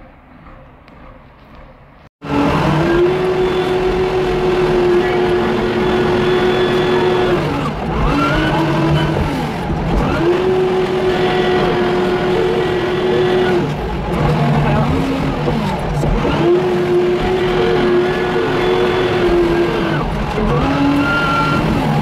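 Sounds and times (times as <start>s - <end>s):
diesel engine revving high: 2.2s - 22.0s.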